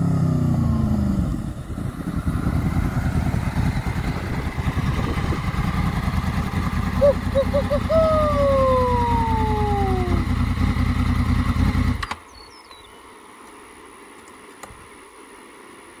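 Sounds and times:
motorcycle engine idling: 0.0 - 12.1.

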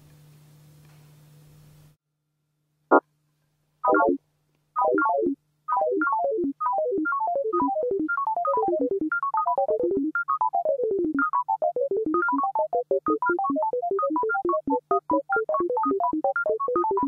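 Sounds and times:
short synthesized notes: 3.8 - 4.2.

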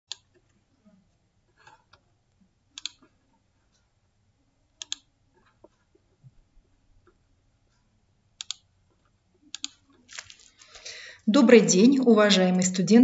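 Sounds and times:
computer mouse clicks: 0.1 - 0.5, 2.7 - 3.1, 4.7 - 5.9, 8.4 - 10.0.

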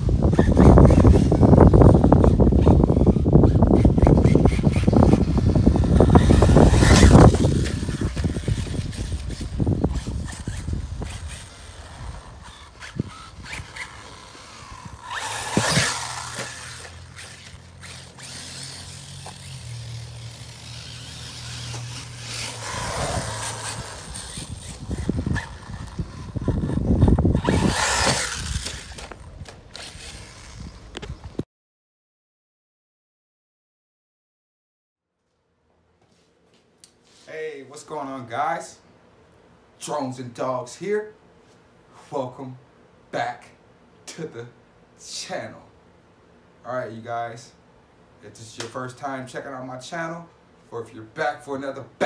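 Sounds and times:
electric motor whining: 0.0 - 31.4.

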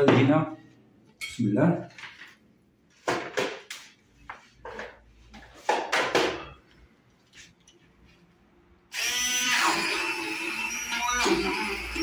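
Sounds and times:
stick blender grinding: 8.9 - 12.0.

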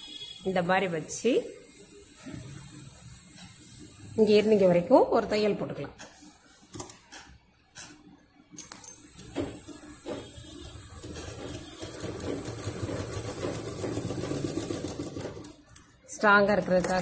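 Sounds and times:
sewing machine stitching: 9.0 - 15.8, 16.5 - 17.0.

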